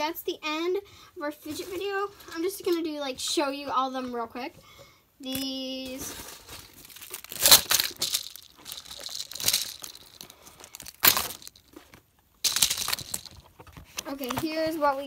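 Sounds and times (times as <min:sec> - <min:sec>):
plastic wrappers crinkling: 0:05.3 - 0:15.0.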